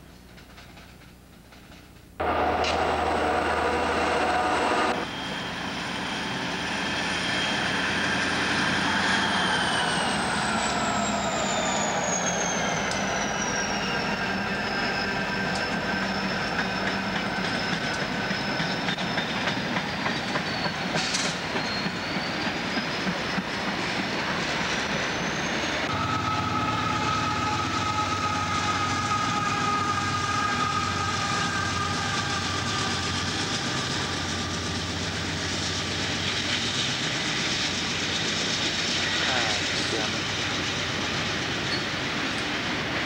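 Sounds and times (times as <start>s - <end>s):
high whine: 2.2s - 18.6s
diesel locomotives humming: 2.2s - 43.0s
train wheels clicking over rail joints: 15.5s - 25.2s.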